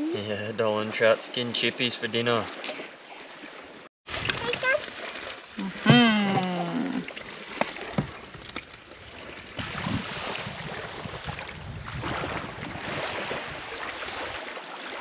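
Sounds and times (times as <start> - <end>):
small waves washing on shore: 0.1 - 15.0
wind buffeting microphone: 7.9 - 14.4.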